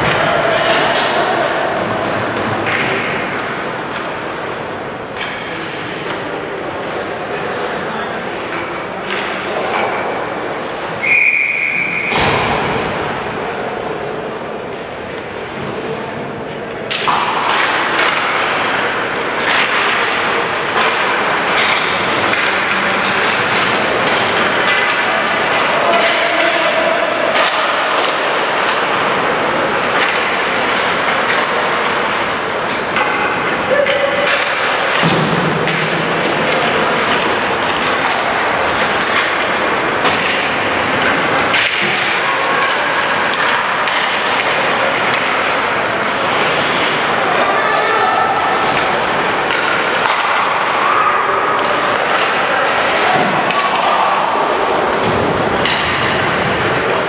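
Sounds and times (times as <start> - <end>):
hockey sticks knocking: 0.0 - 7.6, 8.5 - 10.4, 15.1 - 57.0
puck clacking on ice: 16.9 - 57.0.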